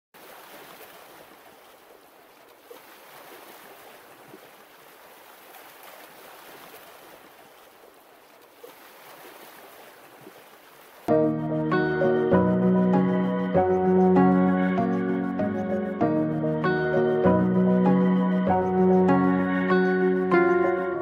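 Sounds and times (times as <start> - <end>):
rushing water: 0.2 - 12.1.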